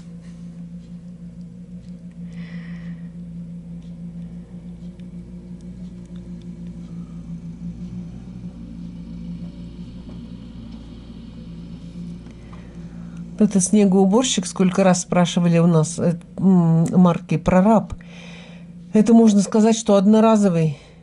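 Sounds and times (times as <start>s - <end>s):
snowblower engine running: 1.8s - 15.3s.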